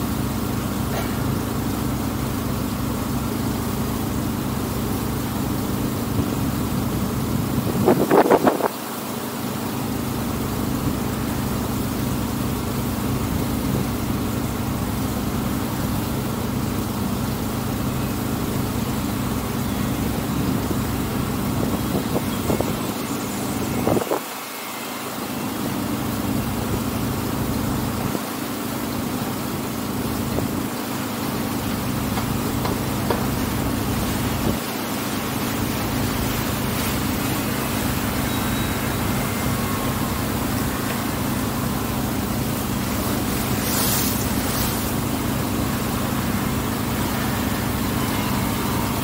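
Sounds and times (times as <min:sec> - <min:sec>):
boat engine droning: 0:00.0 - 0:49.0.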